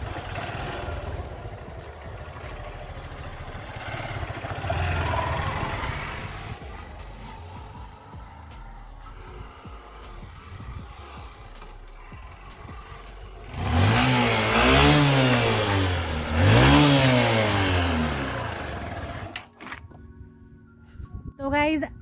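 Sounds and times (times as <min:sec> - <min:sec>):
motorcycle engine revving: 0:00.0 - 0:19.6.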